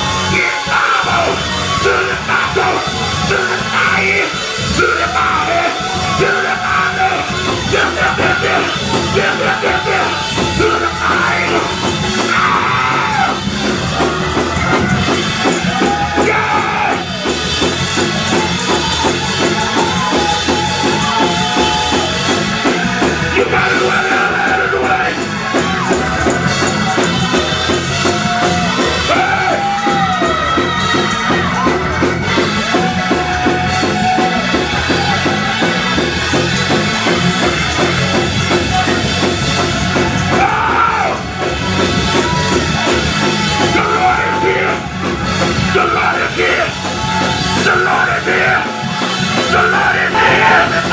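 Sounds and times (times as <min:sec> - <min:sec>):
drum kit beat: 0:00.0 - 0:50.9
live gospel band: 0:00.0 - 0:50.9
voices singing and shouting: 0:00.0 - 0:50.9.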